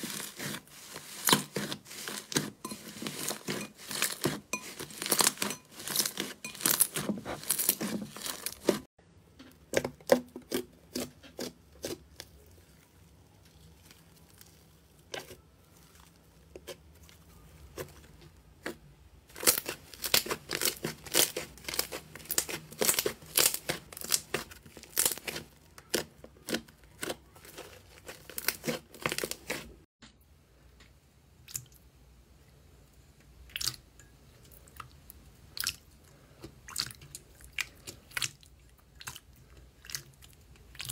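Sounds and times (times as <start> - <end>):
slime crackling and popping: 18.6 - 29.7.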